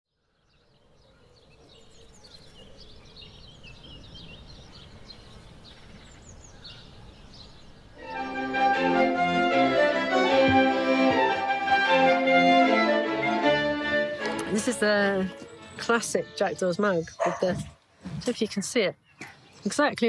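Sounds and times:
birds chirping: 0.1s - 11.3s, 13.5s - 20.0s
violin accordion and clarinet klezmer: 8.0s - 16.9s.

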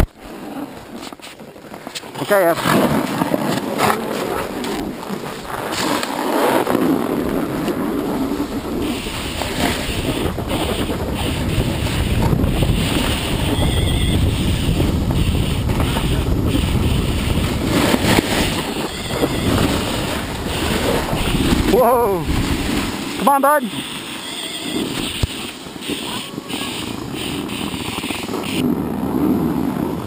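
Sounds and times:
skis sliding over snow: 0.0s - 30.0s
wind rumbling on microphone: 0.0s - 30.0s.

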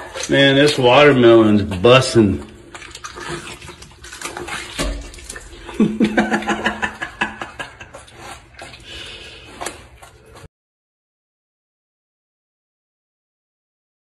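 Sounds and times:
deer chewing watermelon: 0.0s - 10.5s.

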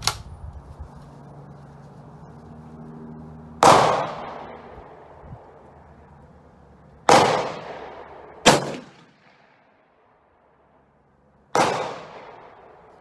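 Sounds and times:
rifle shots: 3.6s - 5.0s, 7.1s - 9.7s, 11.5s - 12.9s.

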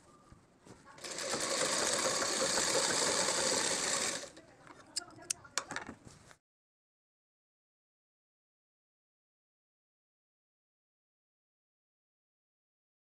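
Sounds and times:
sewing machine stitching: 1.0s - 4.4s.

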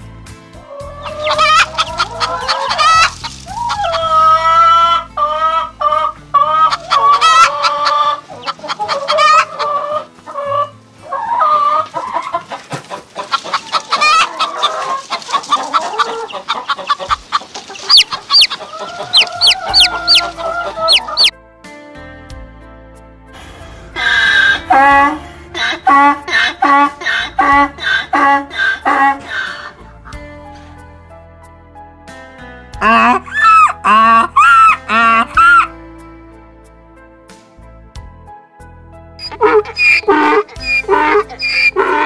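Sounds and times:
hens clucking: 0.7s - 21.3s, 24.0s - 29.9s, 32.8s - 35.7s, 39.2s - 42.0s
high chick peeps: 0.9s - 4.6s, 13.2s - 21.3s, 32.8s - 35.7s, 39.2s - 42.0s.

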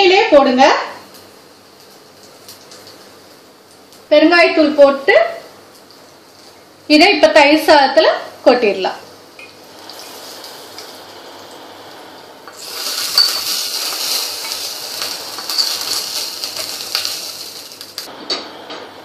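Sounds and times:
hot oil sizzling: 0.6s - 6.8s, 9.1s - 18.2s
steel spoon scraping a pan: 12.5s - 17.8s.

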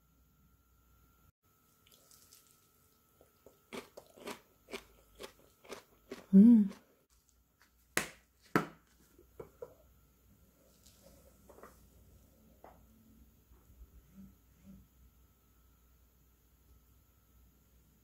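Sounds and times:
wet crunching of cabbage: 1.9s - 6.9s.

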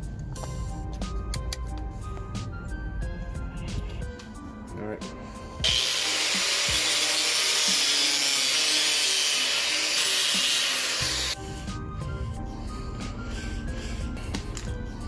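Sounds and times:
angle grinder cutting plastic: 5.6s - 11.4s.

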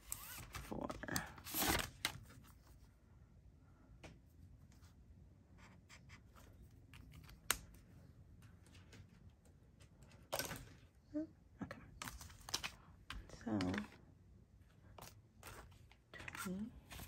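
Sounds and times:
paper bills and plastic rustling: 0.0s - 2.8s, 11.9s - 14.1s, 14.8s - 17.0s.

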